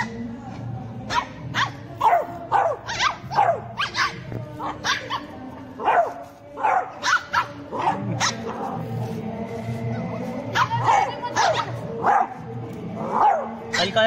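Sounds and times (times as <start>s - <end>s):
puppy play-barking: 1.1s - 4.2s, 4.8s - 8.6s, 10.6s - 12.4s.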